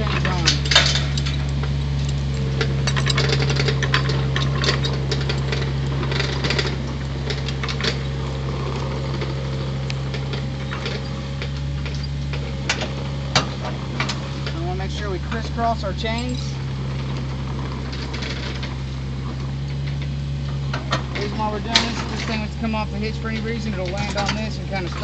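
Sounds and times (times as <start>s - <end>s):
metal chains rattling and clinking: 0.0s - 8.1s, 16.0s - 16.6s
low engine hum: 0.0s - 25.0s.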